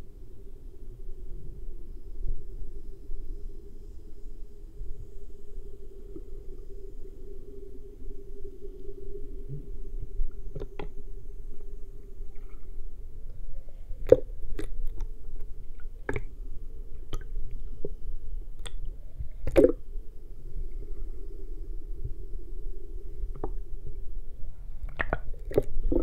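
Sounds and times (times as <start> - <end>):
low underwater hum: 0.0 - 26.0
sharp underwater clicks: 16.0 - 16.3, 18.6 - 19.8, 24.8 - 26.0.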